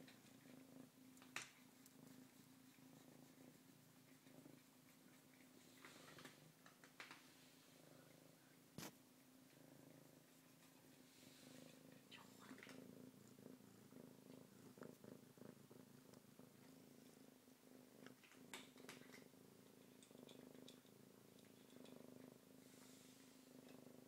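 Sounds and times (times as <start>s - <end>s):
kitten purring: 0.0s - 24.0s
faint clicks: 5.8s - 7.2s.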